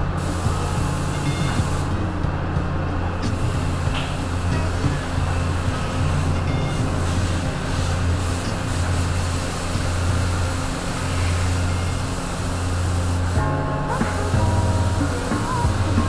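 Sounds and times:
machine humming and hissing: 0:00.0 - 0:16.0.

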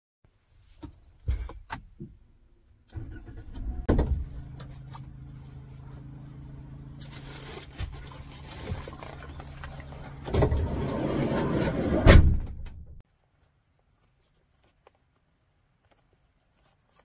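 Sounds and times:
car engine starting and idling: 0:02.6 - 0:12.0.

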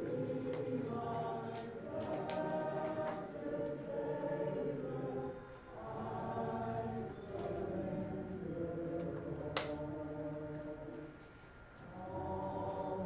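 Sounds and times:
congregation singing: 0:00.0 - 0:13.0
hand clap: 0:09.5 - 0:09.8.

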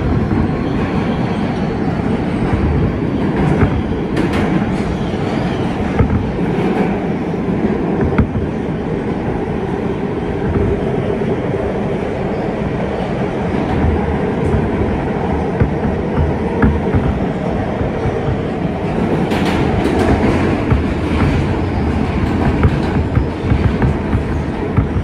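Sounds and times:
subway train rumbling on rails: 0:00.0 - 0:25.0
wheels clicking over rail joints: 0:02.4 - 0:09.6, 0:13.1 - 0:25.0.

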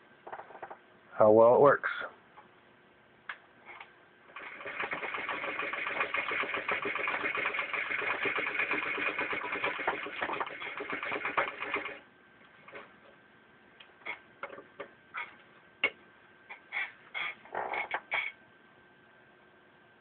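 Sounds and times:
hand-crank sewing machine clicking: 0:04.3 - 0:12.0.

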